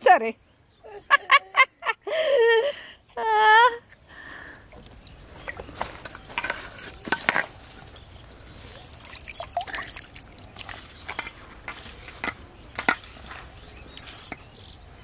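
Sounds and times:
hands kneading bait in metal bowl: 8.5 - 14.7.

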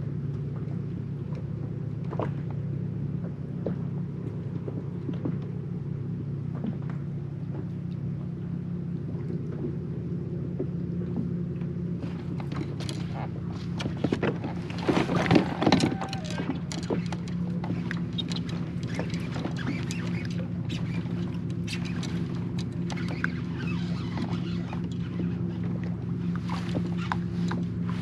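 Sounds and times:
rustling and clicking: 12.2 - 25.5.

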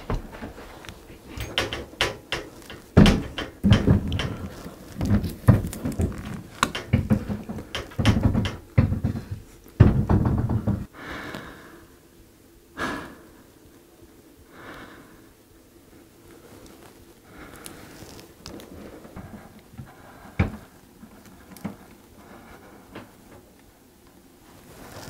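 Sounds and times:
knocks and rattles of tv mount: 1.3 - 10.9.

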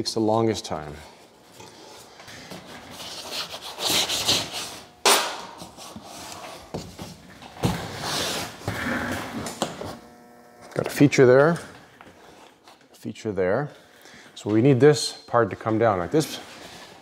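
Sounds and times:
loud sharp snap: 5.0 - 5.6.

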